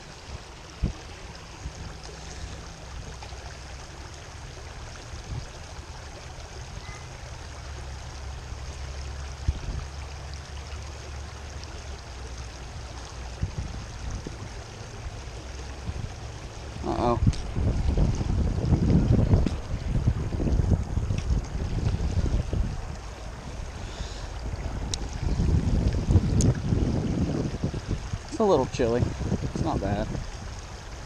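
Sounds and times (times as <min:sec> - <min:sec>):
creek water babbling over rocks: 0:00.0 - 0:31.0
low rumble: 0:13.5 - 0:28.3.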